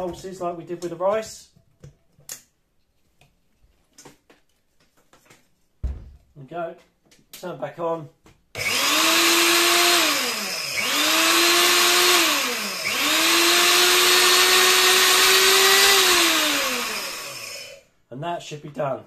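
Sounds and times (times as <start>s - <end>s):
grain grinder motor whining: 8.6s - 17.8s.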